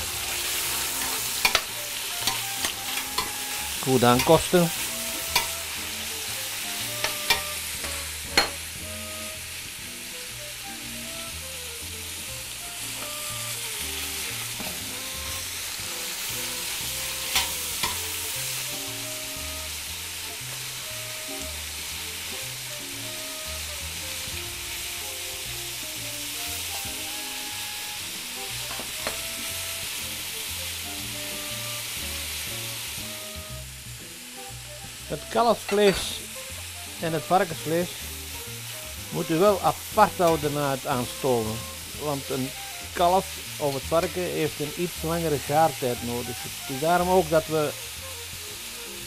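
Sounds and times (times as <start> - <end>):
meat sizzling in hot fat: 0.0 - 49.0
metal tongs clicking on pot: 1.0 - 3.4, 5.3 - 5.5, 17.3 - 18.0.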